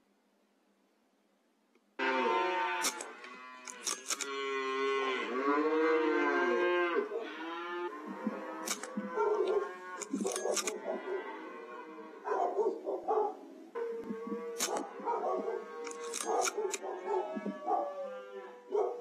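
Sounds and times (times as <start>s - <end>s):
cattle mooing: 2.0s - 12.8s, 13.8s - 19.0s
sharp clicks: 2.8s - 4.3s, 8.1s - 10.8s, 14.0s - 15.0s, 15.8s - 17.6s.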